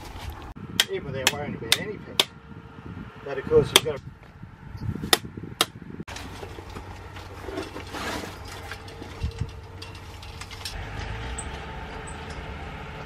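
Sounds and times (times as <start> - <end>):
hammer striking tent peg: 0.8 - 2.4
metal frame rattling and scraping: 6.1 - 13.0.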